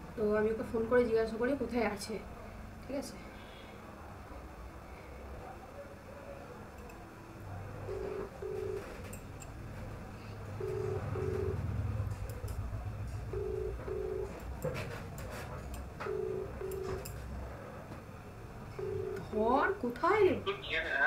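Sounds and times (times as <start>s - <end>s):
phone ringback tone: 7.9s - 9.2s, 10.6s - 12.0s, 13.3s - 14.5s, 16.0s - 17.0s, 18.7s - 19.8s.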